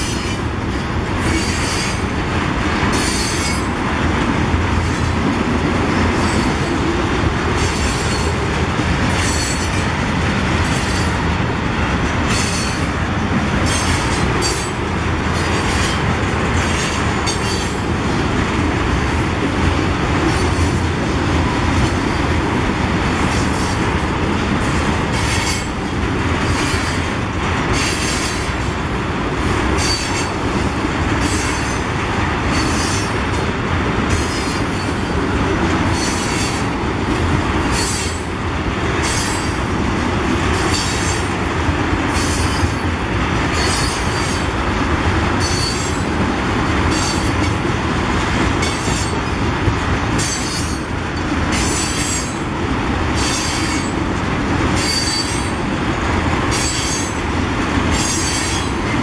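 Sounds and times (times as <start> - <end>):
train wheels rumbling on rail: 0.0 - 59.0
high-pitched wheel squeals: 45.4 - 46.0, 54.8 - 55.5.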